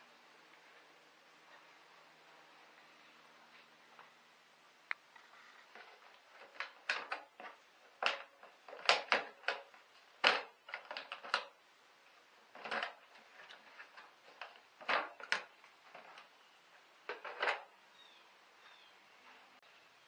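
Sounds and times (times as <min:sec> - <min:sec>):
plastic clicks and knocks: 0:05.7 - 0:11.6, 0:12.5 - 0:16.3, 0:17.1 - 0:17.7.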